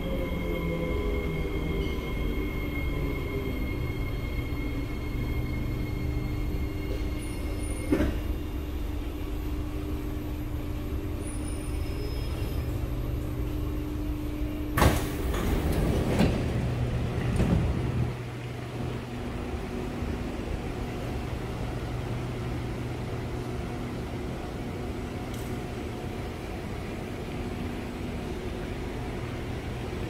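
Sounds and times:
metro car rumble: 0.0 - 30.0
sliding doors opening: 14.8 - 18.2.

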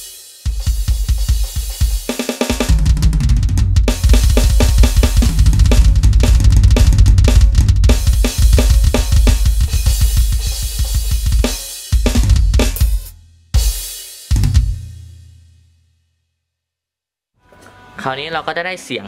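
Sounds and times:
electronic drum kit beat: 0.0 - 15.2.

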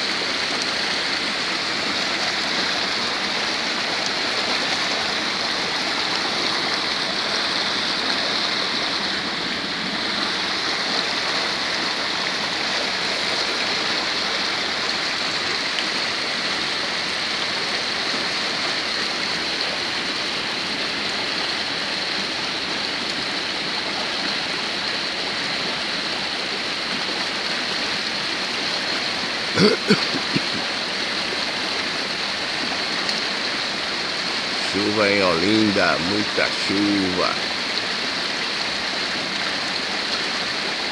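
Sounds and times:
heavy rain: 0.0 - 40.9
runoff water flowing: 0.0 - 40.9.

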